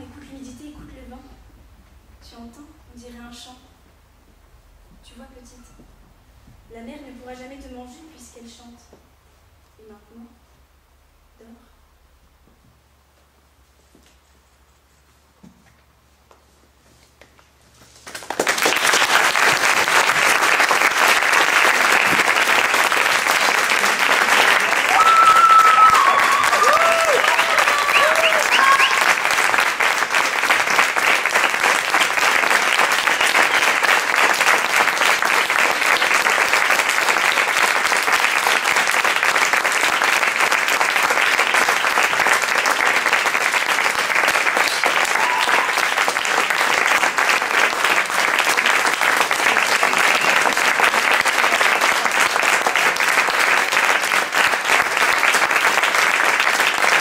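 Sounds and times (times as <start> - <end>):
audience applauding: 18.0 - 57.0.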